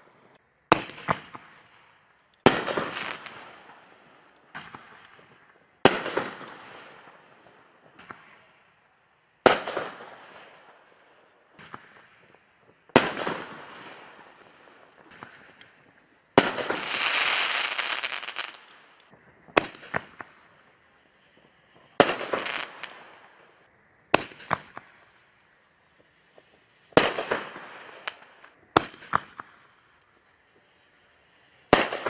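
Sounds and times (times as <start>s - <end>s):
crackling tail: 0.0s - 32.0s.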